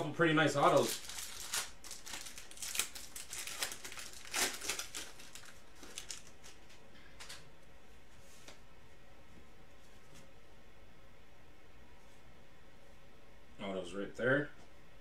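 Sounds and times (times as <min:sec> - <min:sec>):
foil wrapper crinkling and tearing: 0:00.5 - 0:06.8.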